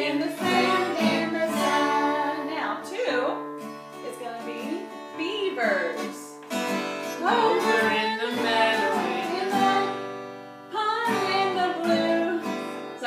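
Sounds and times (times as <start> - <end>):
voices singing children's song: 0.0 - 3.0, 7.0 - 10.1, 10.7 - 13.0
acoustic guitar strumming: 0.0 - 13.0.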